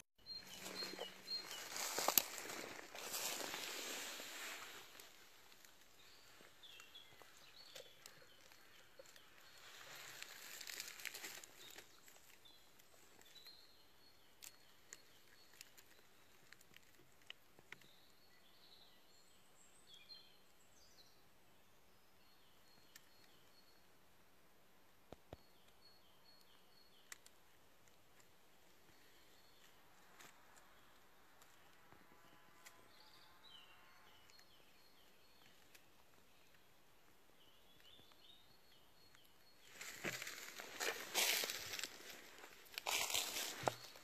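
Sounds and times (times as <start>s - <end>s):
faint small birds chirping: 0.2s - 44.0s
rustle of dry leaf litter underfoot: 0.3s - 13.6s, 39.5s - 44.0s.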